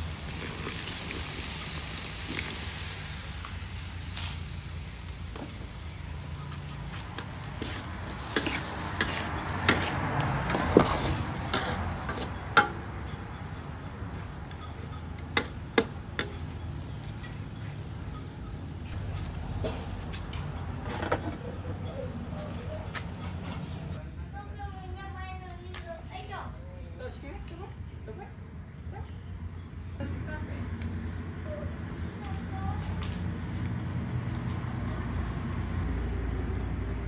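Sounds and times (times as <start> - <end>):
metal spatula scraping wok: 6.4 - 13.7.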